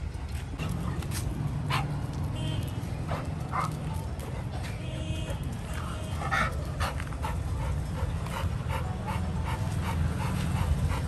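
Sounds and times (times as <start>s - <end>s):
puppy panting: 6.2s - 11.0s.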